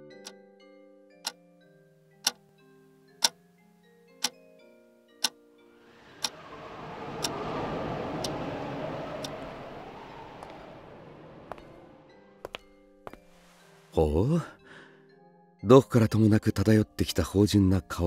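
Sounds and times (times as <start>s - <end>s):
soft chime-like melody: 0.0s - 5.8s
clock ticking: 3.2s - 3.4s
whooshing noise: 5.8s - 12.3s.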